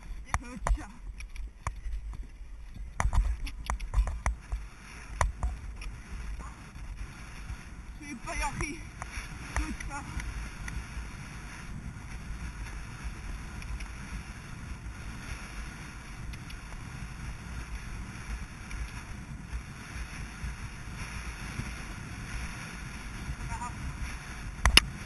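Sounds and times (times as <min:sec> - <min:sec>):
horse hoofbeats thudding: 0:00.0 - 0:06.4
wind rushing over microphone: 0:00.0 - 0:25.0.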